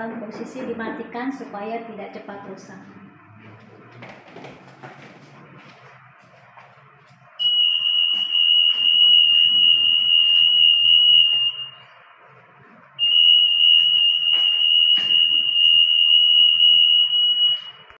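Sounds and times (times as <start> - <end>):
anti-theft alarm high tone: 7.2 - 18.0.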